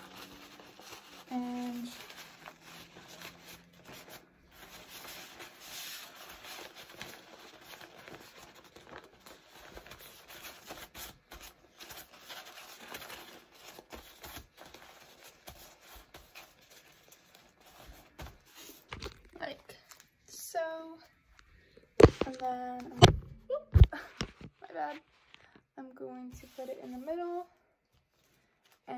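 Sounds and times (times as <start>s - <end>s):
hands scraping wrap: 0.0s - 19.0s
wrap rustling and crinkling: 0.0s - 20.2s.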